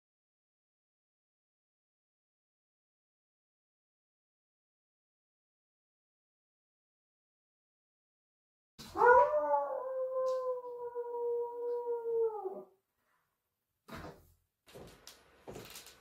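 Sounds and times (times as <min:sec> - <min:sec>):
person howling like a wolf: 0:09.0 - 0:12.7.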